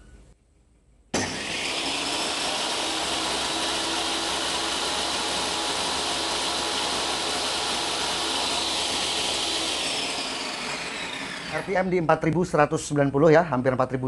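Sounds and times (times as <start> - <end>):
table saw running: 1.2 - 12.3.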